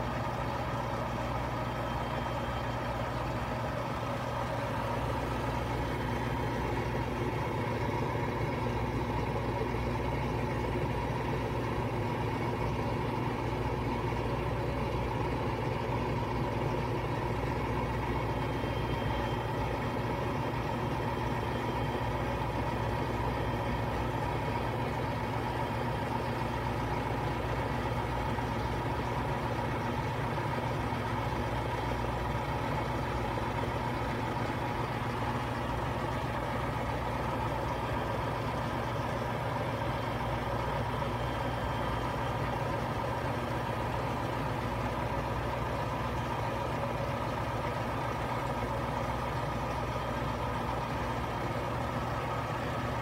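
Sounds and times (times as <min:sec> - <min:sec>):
washing machine spinning: 0:00.0 - 0:53.0.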